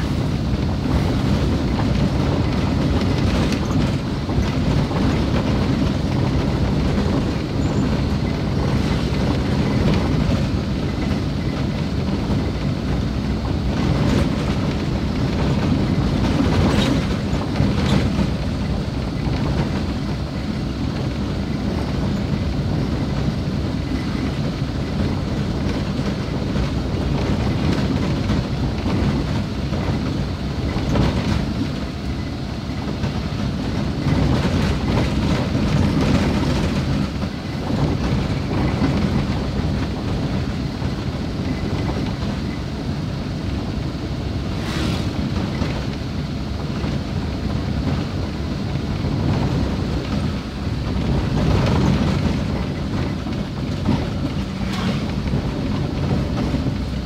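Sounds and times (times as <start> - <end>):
vehicle jolts: 44.4 - 46.0, 49.1 - 57.0
vehicle rumbling over gravel road: 44.4 - 48.3, 48.9 - 57.0.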